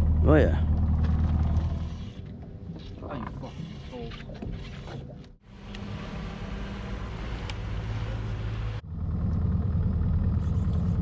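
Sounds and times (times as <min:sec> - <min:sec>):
outboard motor idling: 0:00.0 - 0:02.5, 0:05.6 - 0:11.0.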